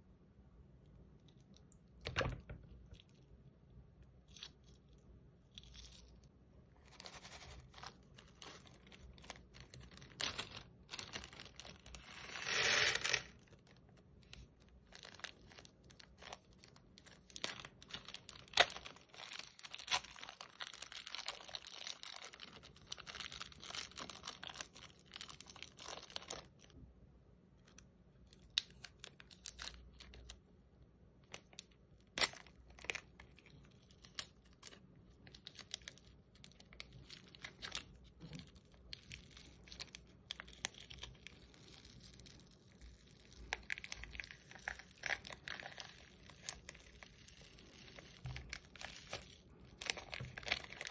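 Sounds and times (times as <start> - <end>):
plastic bags crinkling: 43.4 - 50.9.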